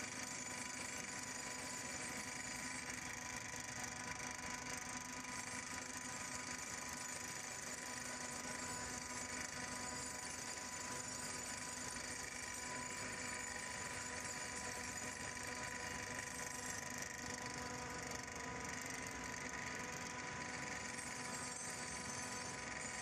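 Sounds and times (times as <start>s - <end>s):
vibratory pile hammer running: 0.0s - 23.0s.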